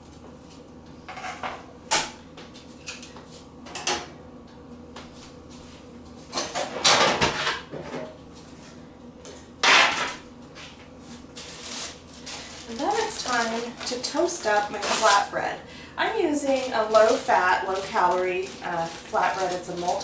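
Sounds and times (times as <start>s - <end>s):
baking sheet scraping: 9.8s - 15.4s, 16.2s - 20.0s.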